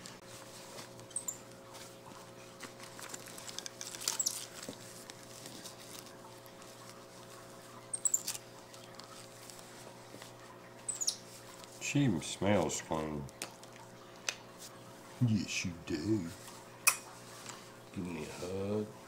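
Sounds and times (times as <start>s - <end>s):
cloth rustling: 0.0s - 11.8s
monkey chirping: 1.1s - 1.4s, 7.9s - 8.4s, 10.9s - 11.2s.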